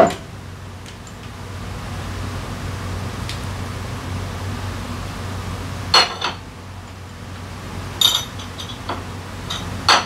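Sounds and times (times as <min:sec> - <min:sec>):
steady low hum: 0:00.0 - 0:10.0
metal parts clinking: 0:08.0 - 0:08.8.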